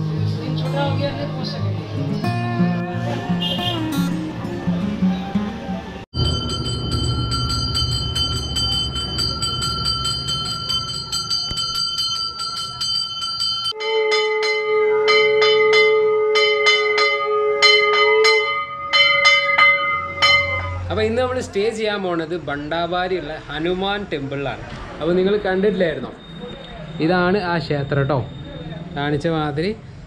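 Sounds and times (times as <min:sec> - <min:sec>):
temple bell rung rapidly: 0:06.2 - 0:21.2
conch shell blown: 0:13.7 - 0:20.9.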